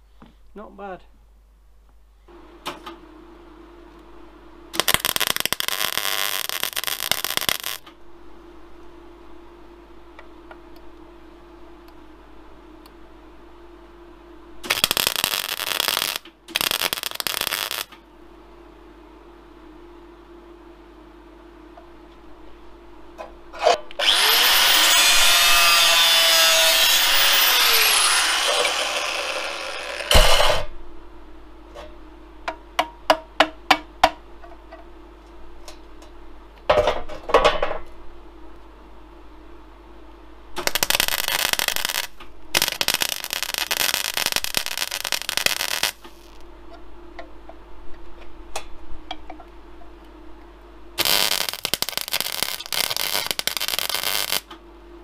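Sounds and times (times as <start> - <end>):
welder crackling: 4.7 - 7.9, 14.6 - 18.0, 23.9 - 30.7, 40.6 - 46.4, 51.0 - 54.6
angle grinder running: 24.0 - 30.7.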